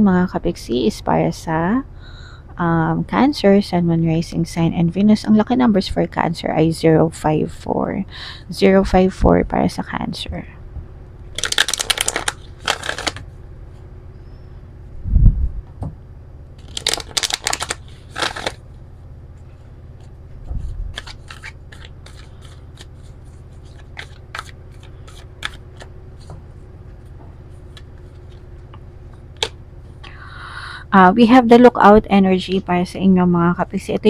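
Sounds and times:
cards clicking while handled: 11.4 - 13.2, 20.9 - 26.3, 29.4 - 29.6
cards riffle-shuffled: 11.4 - 13.2, 16.6 - 18.6, 20.0 - 26.3, 27.0 - 28.5.

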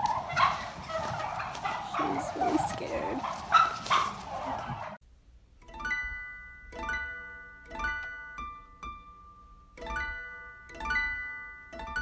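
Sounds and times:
plucked-string chords: 5.6 - 12.0.

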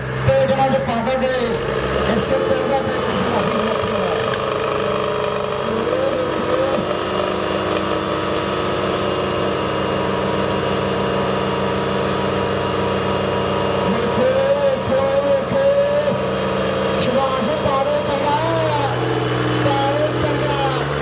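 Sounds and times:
tractor diesel engines running: 0.0 - 21.0.

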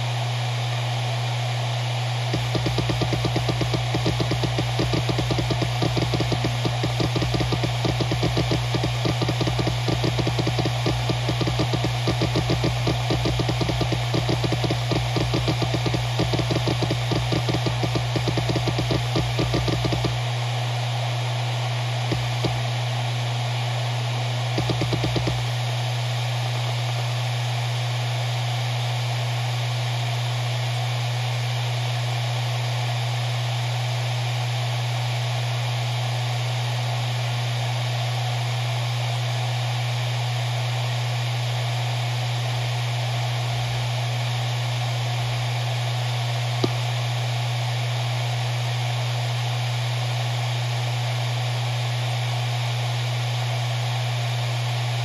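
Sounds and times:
hard drive humming: 0.0 - 27.0, 46.3 - 47.6
hard drive click: 2.3 - 20.2, 22.1 - 22.7, 24.6 - 25.5, 46.6 - 46.8.

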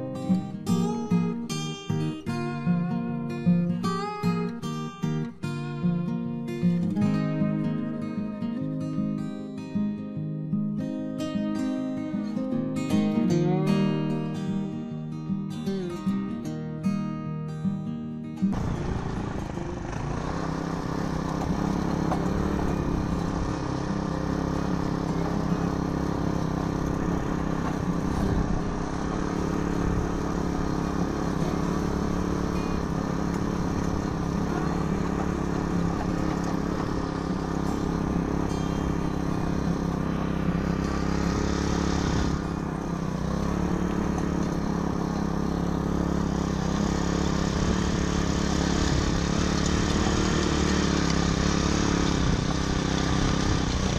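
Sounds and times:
petrol tiller running: 18.5 - 53.9.

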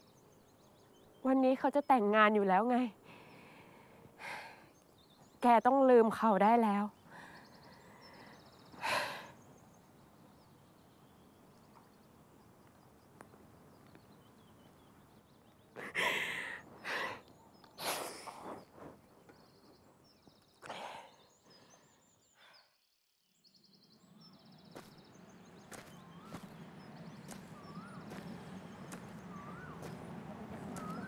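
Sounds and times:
faint bird chirps: 4.2 - 30.0, 30.6 - 31.0
woman sighing and breathing hard: 15.8 - 17.2.

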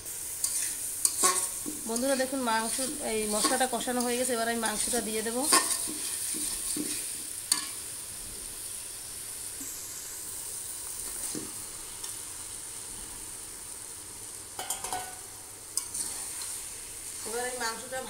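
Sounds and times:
meat sizzling in hot oil: 0.0 - 18.0
metal spatula scraping pan: 0.4 - 7.7, 15.8 - 16.6.

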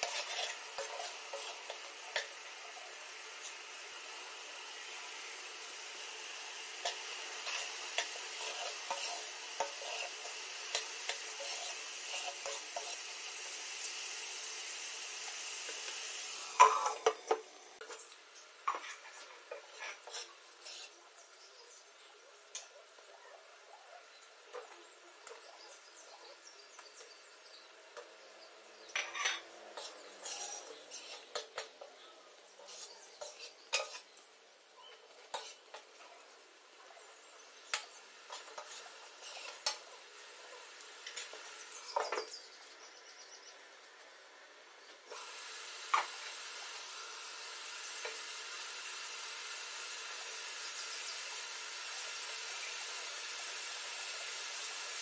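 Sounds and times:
metal spoon scraping a pan: 0.0 - 3.6, 6.5 - 13.8, 16.6 - 18.0, 18.7 - 21.0, 28.9 - 31.8, 32.6 - 34.2, 35.3 - 35.8, 37.7 - 39.9
masala sizzling in a pan: 0.0 - 55.0.

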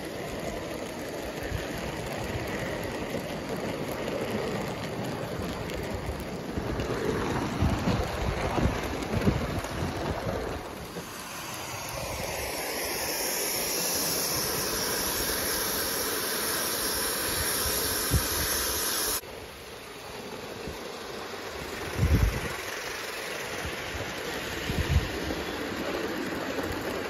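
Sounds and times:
model trains rumbling on track: 0.0 - 27.0
steam locomotive hissing: 10.6 - 27.0.

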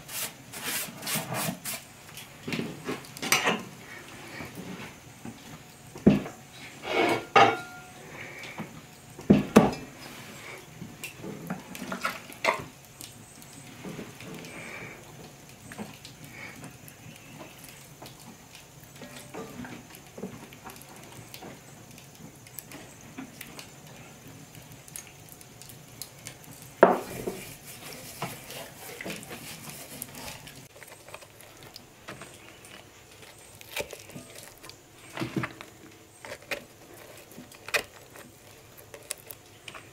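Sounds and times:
scraping bread in pot: 0.0 - 1.9, 26.8 - 39.9
pot and utensils clinking: 7.0 - 8.0.

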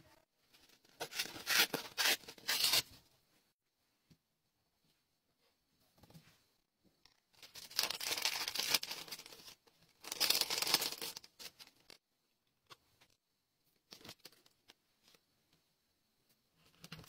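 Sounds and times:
plastic packaging crinkling: 7.4 - 11.9.

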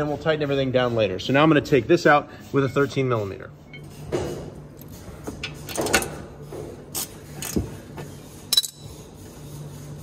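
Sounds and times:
socket wrench clicks and clinks: 8.5 - 8.8.

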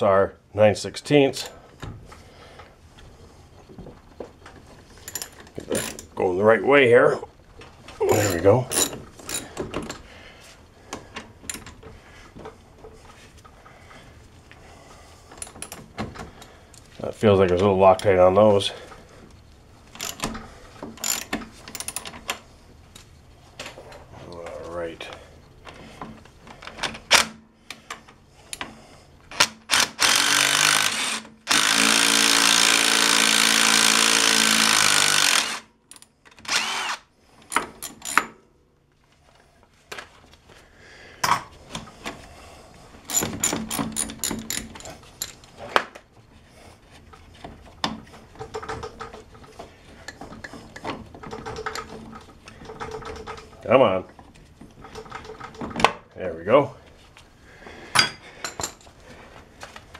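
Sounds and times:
metal clinks: 8.1 - 9.6
cordless power tool spinning: 29.3 - 35.7, 36.4 - 37.1
rapid ratchet clicking: 29.3 - 38.2.

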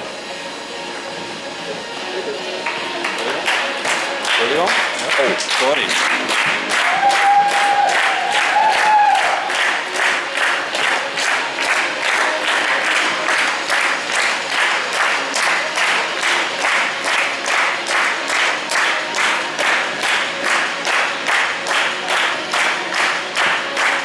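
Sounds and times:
audience clapping in unison: 2.6 - 24.0.

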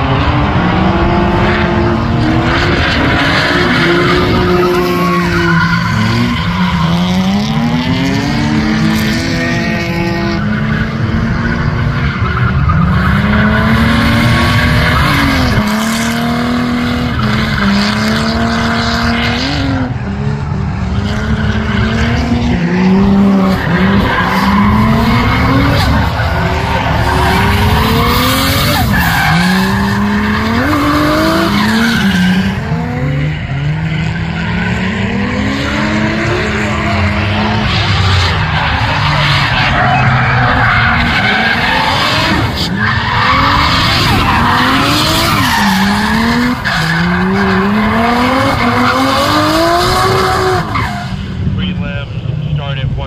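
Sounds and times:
car engines revving: 0.0 - 53.0.

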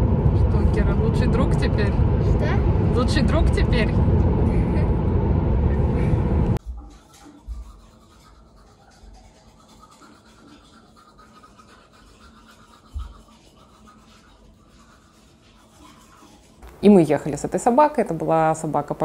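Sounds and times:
toothbrush scrubbing teeth: 6.6 - 16.7.

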